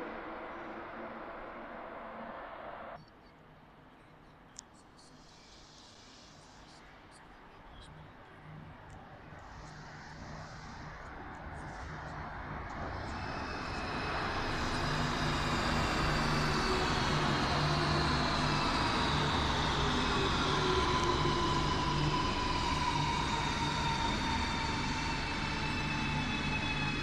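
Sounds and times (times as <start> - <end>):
electric train braking: 12.7 - 27.0
train motors whining: 12.7 - 27.0.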